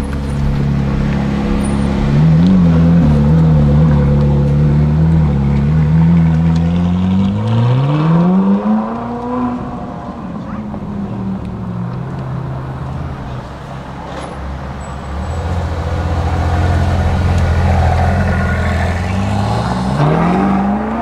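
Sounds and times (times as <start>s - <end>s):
car engine running: 0.0s - 6.6s.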